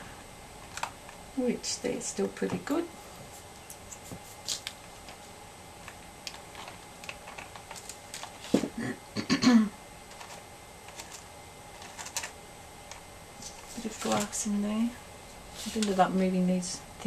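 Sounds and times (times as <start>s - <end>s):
seashells clicking and tapping: 5.8s - 8.6s, 10.1s - 13.6s.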